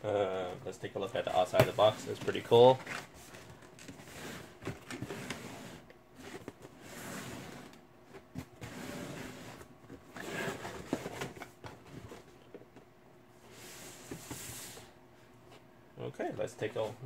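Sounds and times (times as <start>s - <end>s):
wooden crate scraping on shelf: 4.0s - 7.8s, 8.5s - 11.2s.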